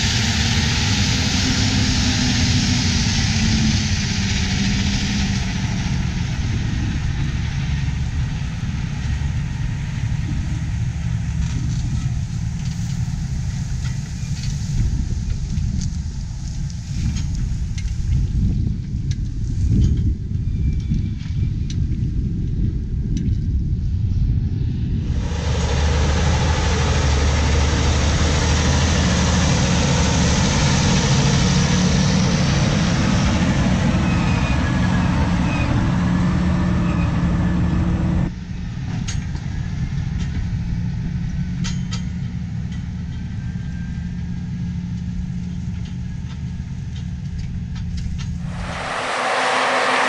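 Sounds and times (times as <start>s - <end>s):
diesel engine running: 0.0s - 14.5s, 24.9s - 38.3s, 48.4s - 50.0s.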